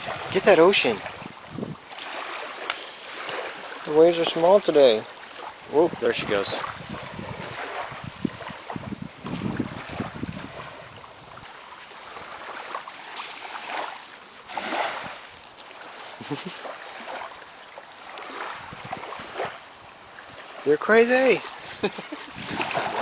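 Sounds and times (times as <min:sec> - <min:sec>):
wind buffeting microphone: 0:00.0 - 0:04.7, 0:05.3 - 0:12.8, 0:18.2 - 0:20.7, 0:21.3 - 0:23.0
small waves washing onto sand: 0:00.0 - 0:23.0.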